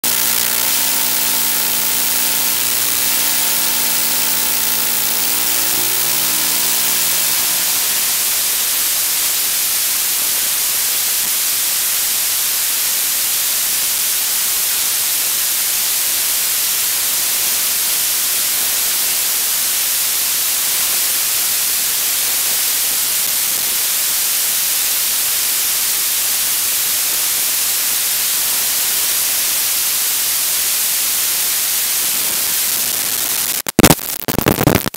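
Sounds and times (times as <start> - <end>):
low hum tones: 0.0 - 9.2
loud static hiss: 0.0 - 34.9.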